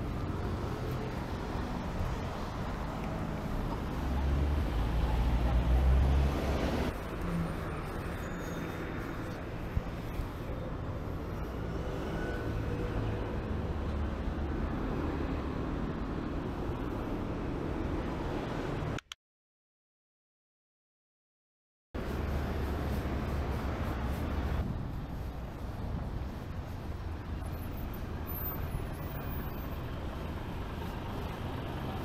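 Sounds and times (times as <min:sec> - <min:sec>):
cars going by: 0:00.0 - 0:19.0, 0:22.0 - 0:32.0
vehicle passing close by: 0:02.8 - 0:07.6.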